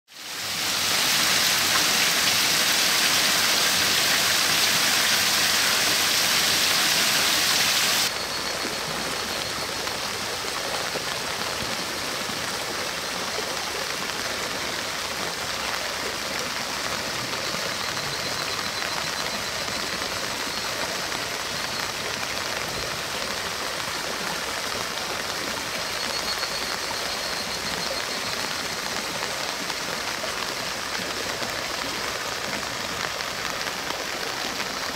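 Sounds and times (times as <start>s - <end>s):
heavy rain pouring: 0.1s - 34.9s.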